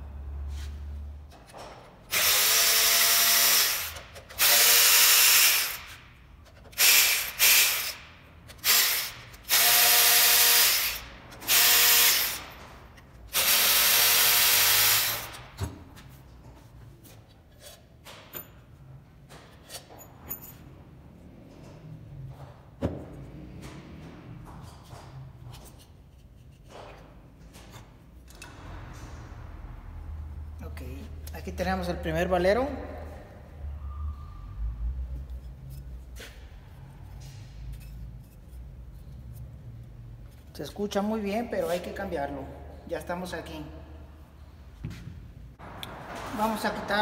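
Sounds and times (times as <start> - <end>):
electric ratchet running: 2.1 - 6.0, 6.7 - 12.5, 13.3 - 15.5
tools and parts clicking: 3.5 - 9.6, 17.2 - 18.6, 37.1 - 40.5.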